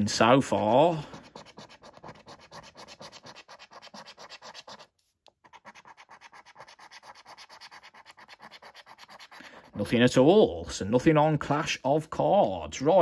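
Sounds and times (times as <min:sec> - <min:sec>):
scratching a scratchcard: 0:00.2 - 0:10.8.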